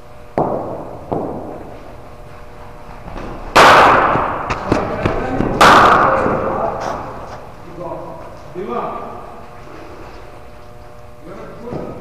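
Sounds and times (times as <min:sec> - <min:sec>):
cricket bat striking ball: 0:00.4 - 0:01.8, 0:03.1 - 0:06.6.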